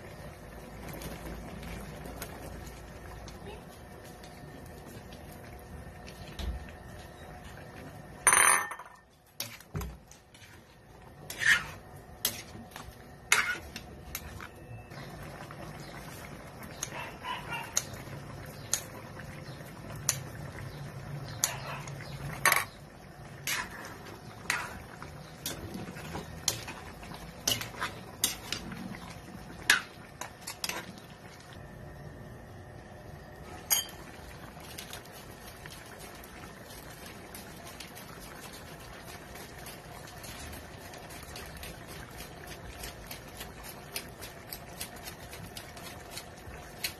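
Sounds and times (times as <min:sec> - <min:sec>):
metal clinking against a pan: 0:08.2 - 0:09.0, 0:33.7 - 0:34.0.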